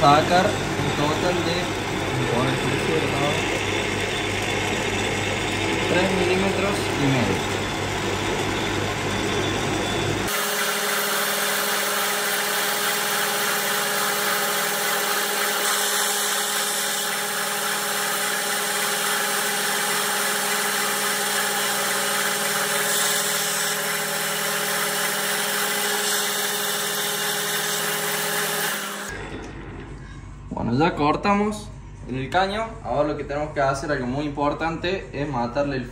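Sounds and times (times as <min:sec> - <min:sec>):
lathe motor and gears whining: 0:00.0 - 0:29.9
cutting tool hiss: 0:10.3 - 0:29.1.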